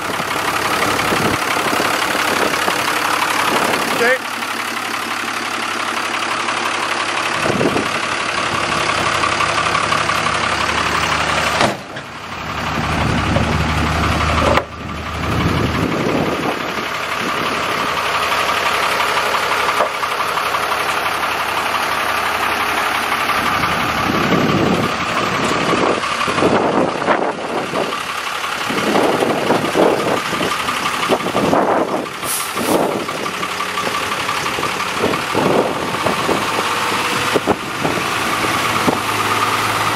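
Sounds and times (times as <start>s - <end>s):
truck diesel engine idling: 0.0s - 39.9s.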